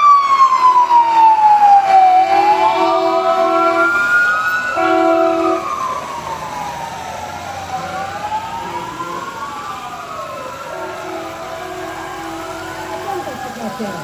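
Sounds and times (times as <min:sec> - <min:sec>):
emergency sirens wailing: 0:00.0 - 0:14.0
vehicle horn blasts: 0:02.6 - 0:04.0, 0:04.8 - 0:05.6, 0:10.7 - 0:13.2.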